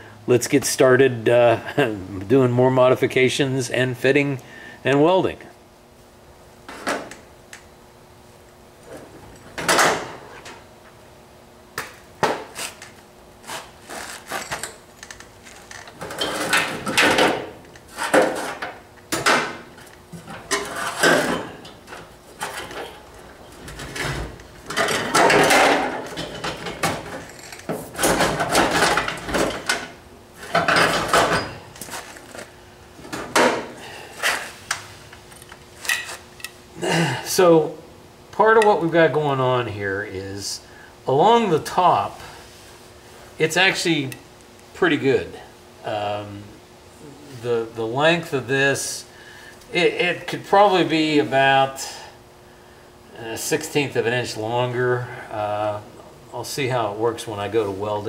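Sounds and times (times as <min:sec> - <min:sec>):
faint steady hum: 0:00.0 - 0:58.0
tools and sheet metal clanking: 0:14.2 - 0:32.4.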